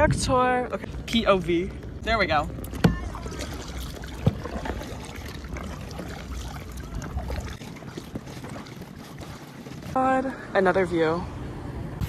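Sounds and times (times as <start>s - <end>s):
water lapping against kayak hull: 0.0s - 11.1s
wind rumble on microphone: 0.0s - 12.0s
knock on kayak: 2.7s - 3.2s, 4.1s - 4.8s.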